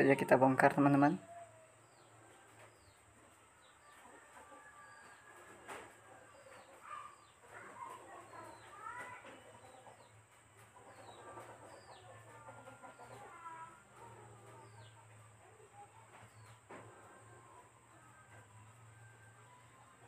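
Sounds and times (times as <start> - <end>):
chickens clucking: 0.0 - 20.0
small birds chirping: 0.0 - 20.0.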